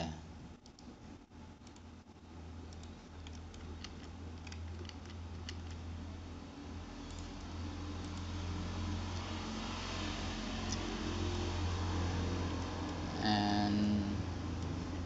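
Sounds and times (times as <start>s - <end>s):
steady low hum: 0.0s - 15.0s
keyboard and mouse clicking: 1.6s - 1.9s, 2.7s - 5.8s.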